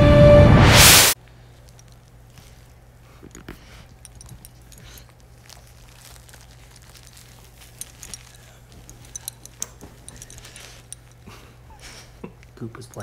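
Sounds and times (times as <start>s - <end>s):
steady low hum: 0.0s - 13.0s
plush toy crinkling and rustling: 1.2s - 13.0s.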